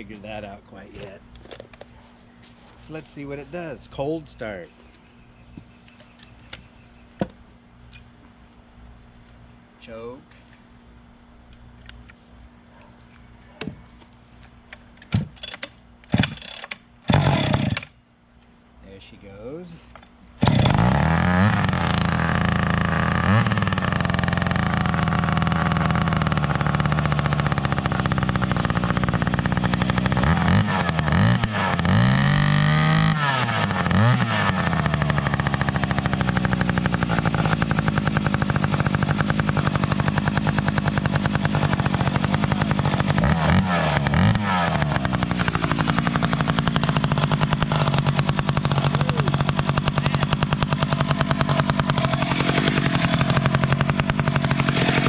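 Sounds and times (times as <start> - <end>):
chainsaw revving: 15.4 - 17.9, 20.4 - 55.0.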